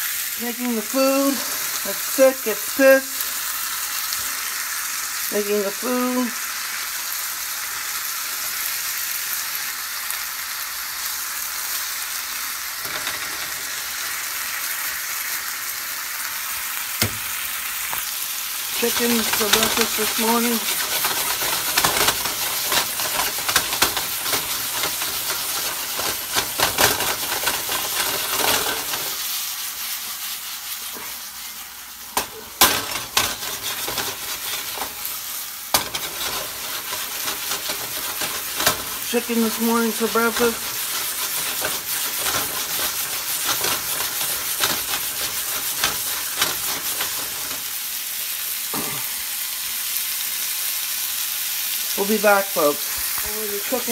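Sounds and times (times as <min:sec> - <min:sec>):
food sizzling in a frying pan: 0:00.0 - 0:53.9
sharp pops and knocks: 0:17.0 - 0:17.3.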